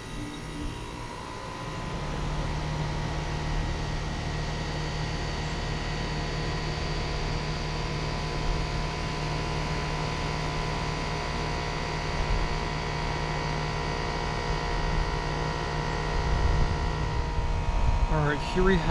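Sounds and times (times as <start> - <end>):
air conditioner compressor hum: 0.0 - 18.9
rush of fan air: 14.0 - 18.9.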